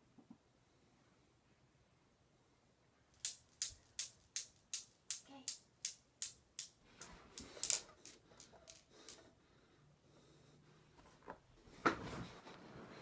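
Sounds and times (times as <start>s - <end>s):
steel balls clicking together: 3.1s - 9.3s
balls clattering in hands: 3.2s - 9.3s.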